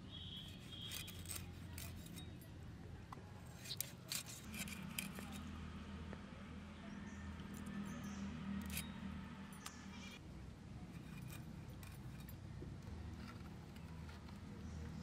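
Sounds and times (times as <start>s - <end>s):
metal blade scraping: 0.2s - 2.6s, 3.4s - 5.6s, 7.5s - 10.2s, 10.9s - 12.4s.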